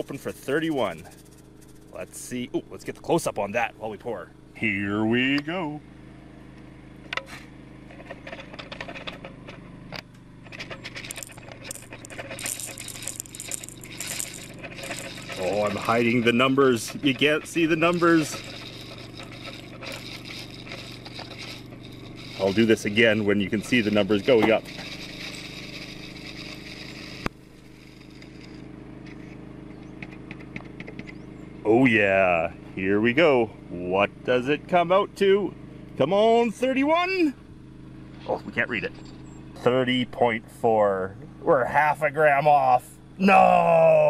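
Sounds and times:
low hum: 0:00.0 - 0:34.6
engine running: 0:00.0 - 0:44.0.

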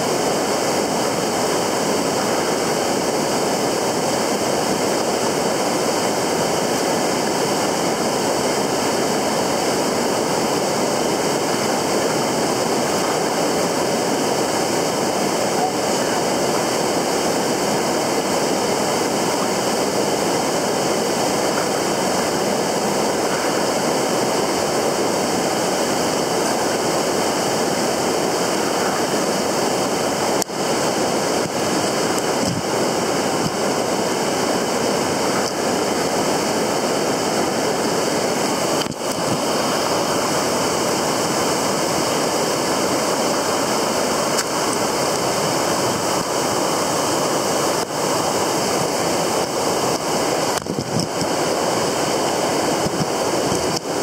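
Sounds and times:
river water running over rocks: 0:00.0 - 0:54.0.

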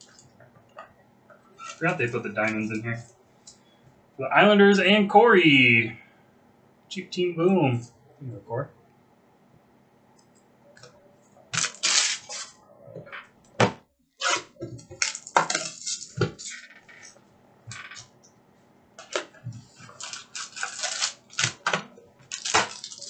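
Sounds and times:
card packs rustling and tapping: 0:19.0 - 0:23.0.

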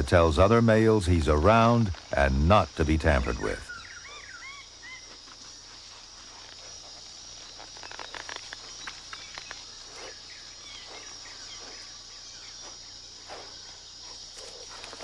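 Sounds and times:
high insect drone: 0:00.0 - 0:15.0
faint bird chirps: 0:03.1 - 0:05.2.

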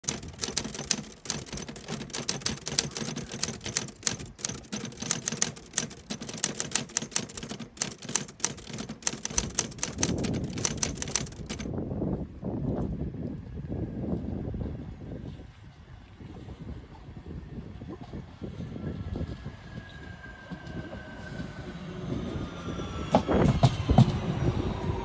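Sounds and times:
typewriter key clacks: 0:00.0 - 0:11.7
wind noise on microphone: 0:08.6 - 0:25.0.

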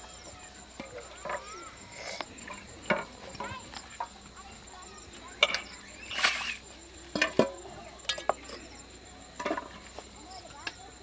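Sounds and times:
metal pots knocking and clinking: 0:00.8 - 0:01.5, 0:02.4 - 0:04.1, 0:07.1 - 0:08.6, 0:09.4 - 0:09.8.

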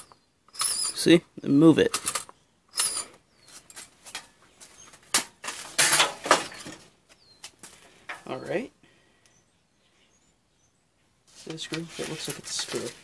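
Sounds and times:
sheet metal clinking and scraping: 0:05.0 - 0:06.9.

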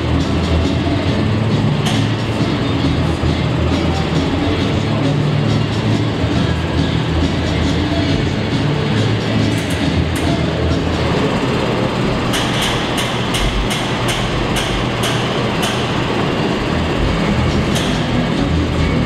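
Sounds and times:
tractor diesel engine running: 0:00.0 - 0:19.0
even clicks: 0:12.2 - 0:16.0.

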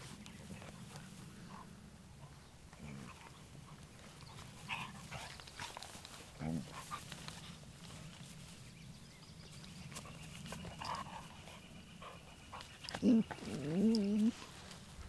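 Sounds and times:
dogs growling: 0:00.3 - 0:07.1, 0:09.9 - 0:14.6
dog whine-growl: 0:12.9 - 0:14.4.

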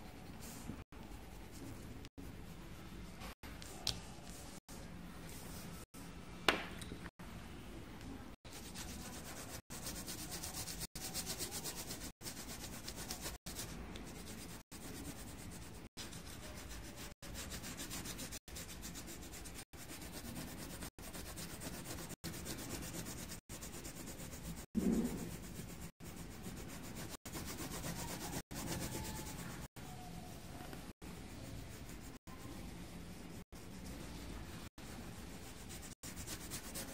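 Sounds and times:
pencil scratching on paper: 0:08.5 - 0:36.9.

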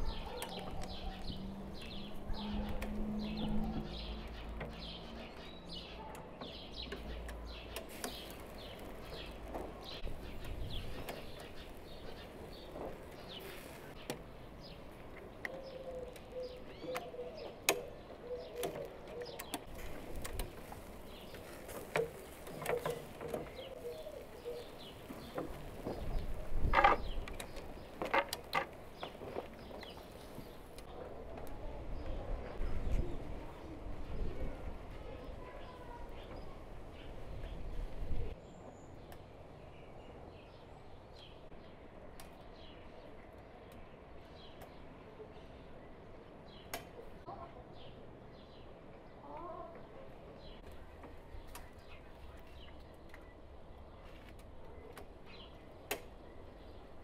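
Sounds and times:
small birds chirping: 0:00.0 - 0:57.0
dove cooing: 0:15.6 - 0:19.5, 0:22.6 - 0:25.3.

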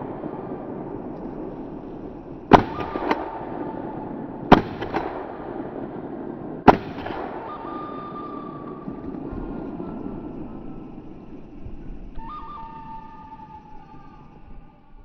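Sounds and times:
shotgun shots: 0:00.0 - 0:09.3
faint echoing crack: 0:00.0 - 0:14.6.

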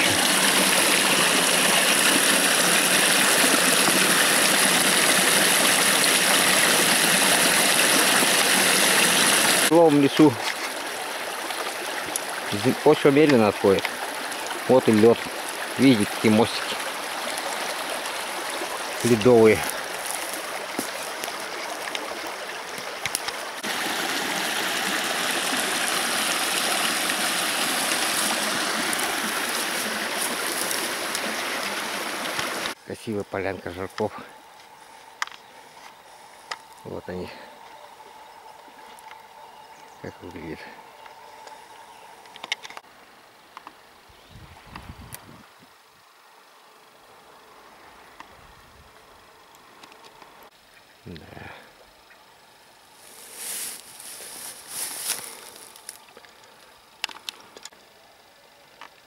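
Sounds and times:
stream over small waterfall: 0:00.0 - 0:34.0.

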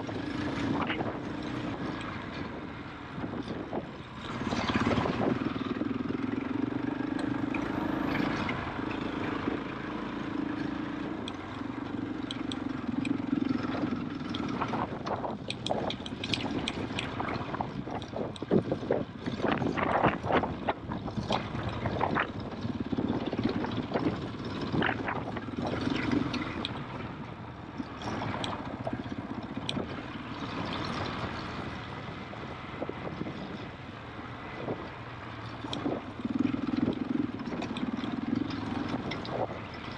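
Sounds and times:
motorbike engine running: 0:03.3 - 0:33.7, 0:34.5 - 0:39.9
knocks and clatter over stones: 0:12.2 - 0:27.1, 0:27.9 - 0:31.7, 0:35.4 - 0:39.9.

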